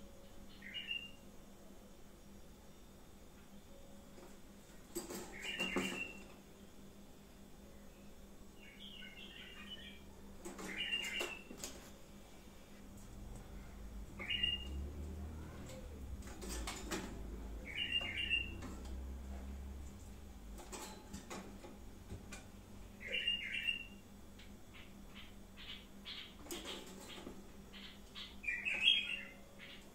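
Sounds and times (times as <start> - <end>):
budgerigar whistling calls: 23.0 - 24.0.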